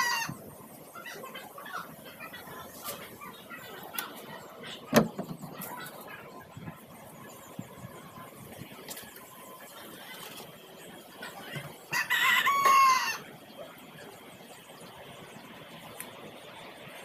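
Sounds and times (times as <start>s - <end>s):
rooster crowing: 0.0s - 0.4s, 11.9s - 13.3s.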